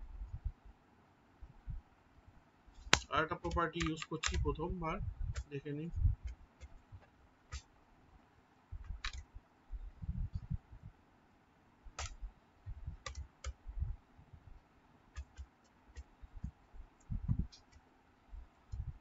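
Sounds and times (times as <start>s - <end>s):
computer keyboard typing: 3.0s - 4.5s, 8.9s - 9.2s, 12.0s - 12.2s, 13.0s - 13.6s, 15.1s - 16.5s.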